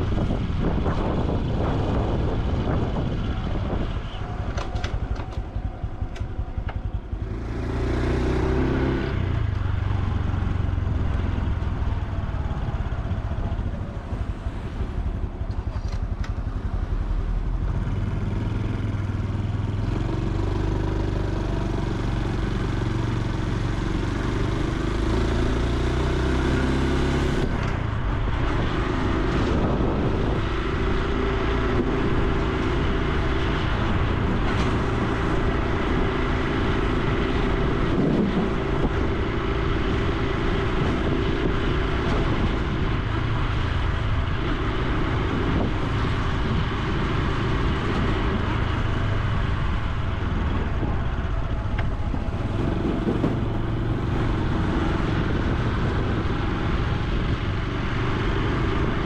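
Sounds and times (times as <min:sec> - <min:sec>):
motorcycle engine and exhaust: 0:00.0 - 0:59.0.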